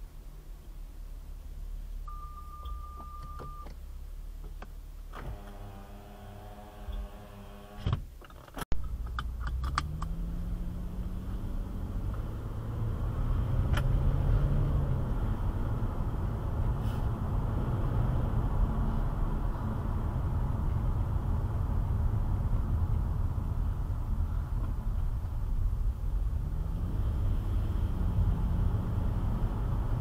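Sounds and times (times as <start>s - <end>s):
steady beep: 2.1s - 3.7s
tyre and road noise: 3.6s - 30.0s
car engine accelerating: 8.8s - 30.0s.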